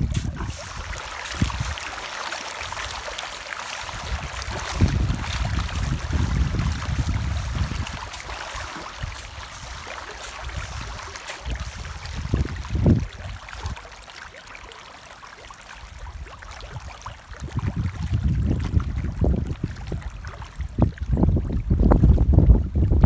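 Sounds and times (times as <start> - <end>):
wind rumble on microphone: 0.0 - 1.8, 3.8 - 13.8, 16.0 - 23.0
fish splashing at water surface: 0.0 - 21.0.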